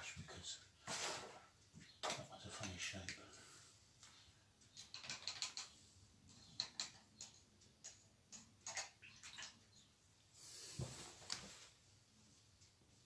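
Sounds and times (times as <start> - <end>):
small hard objects clicking: 4.6 - 9.6.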